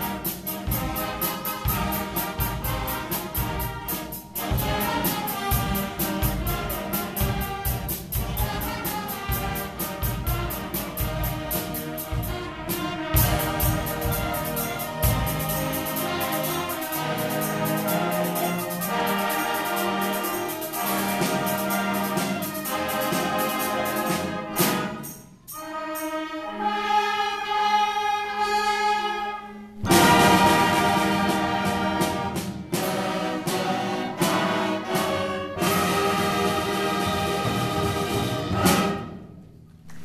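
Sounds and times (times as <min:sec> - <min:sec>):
concert band playing chords: 0:00.0 - 0:25.1, 0:29.8 - 0:39.1
percussion strikes: 0:00.0 - 0:27.1, 0:29.8 - 0:40.0.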